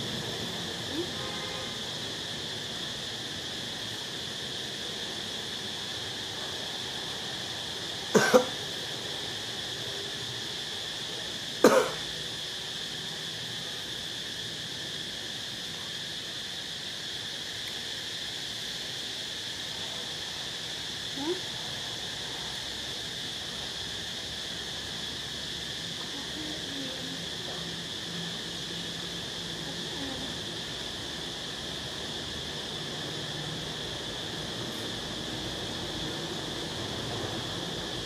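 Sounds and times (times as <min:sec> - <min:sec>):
steady high background hiss: 0:00.0 - 0:38.0
person coughing: 0:08.2 - 0:08.6, 0:11.6 - 0:12.0.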